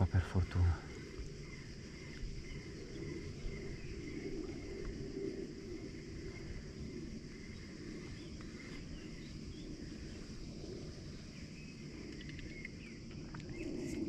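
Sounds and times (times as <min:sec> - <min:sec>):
faint bird chirps: 0:00.0 - 0:14.0
high drone of insects: 0:00.0 - 0:14.0.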